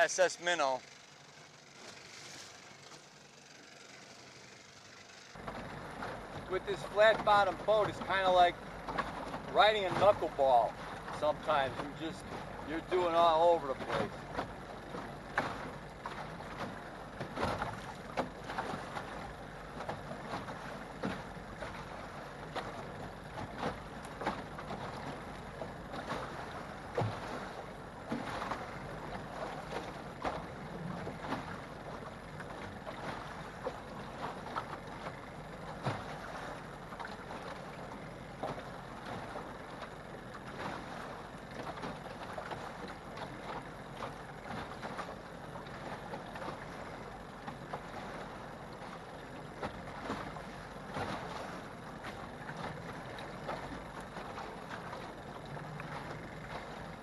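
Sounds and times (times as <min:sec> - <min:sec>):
water slapping boat hull: 0:00.0 - 0:57.0
wind: 0:00.0 - 0:57.0
water wash: 0:01.7 - 0:57.0.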